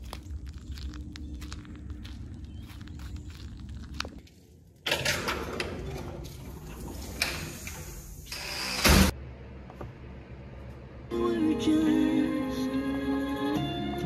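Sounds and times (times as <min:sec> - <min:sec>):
footsteps on gravel: 0:00.0 - 0:04.8
door opening: 0:04.8 - 0:09.2.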